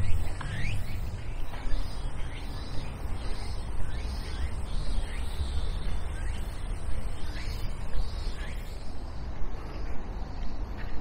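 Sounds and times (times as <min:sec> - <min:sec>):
steady low rumble: 0:00.0 - 0:04.0
birds chirping: 0:00.0 - 0:11.0.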